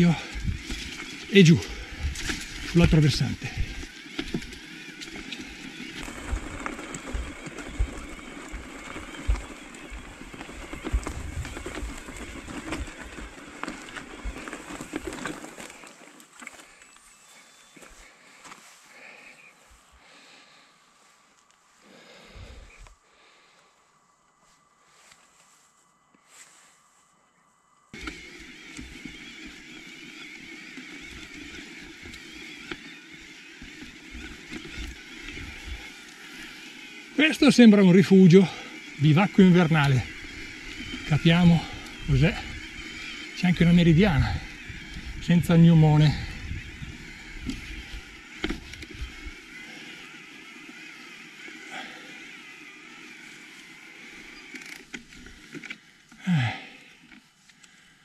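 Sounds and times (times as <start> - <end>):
wind rumbling on microphone: 0.0 - 1.0, 1.7 - 2.8, 6.0 - 15.0, 43.6 - 49.4
tyres crunching on loose rock: 0.0 - 16.9, 28.0 - 56.7
bike clicks and rattles: 0.0 - 17.1, 28.0 - 49.9, 53.2 - 57.8
wheels thumping on stones: 0.0 - 17.1, 28.0 - 57.2
electric motor whine: 0.0 - 23.5, 27.9 - 58.0.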